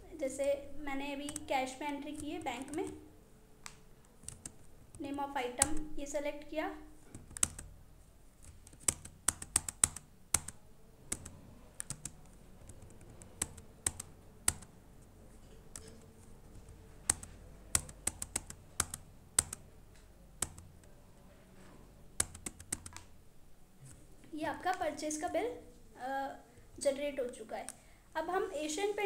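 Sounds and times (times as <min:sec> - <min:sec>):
computer keyboard typing: 0:01.2 - 0:03.0, 0:04.2 - 0:04.7, 0:05.6 - 0:05.9, 0:07.1 - 0:07.7, 0:08.4 - 0:14.7, 0:15.7 - 0:19.7, 0:20.4 - 0:20.7, 0:22.2 - 0:23.1.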